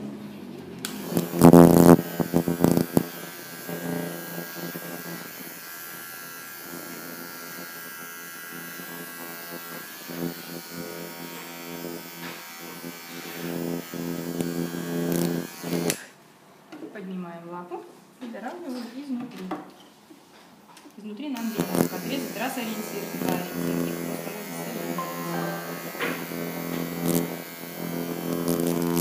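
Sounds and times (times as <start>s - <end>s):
electric clipper buzzing: 0.8s - 16.1s, 21.4s - 29.0s.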